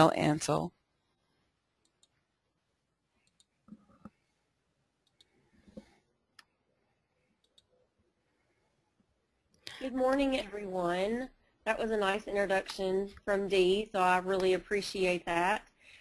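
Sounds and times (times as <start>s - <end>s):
computer mouse clicks: 1.8s - 2.2s, 3.2s - 4.2s, 5.0s - 6.6s, 7.4s - 7.8s.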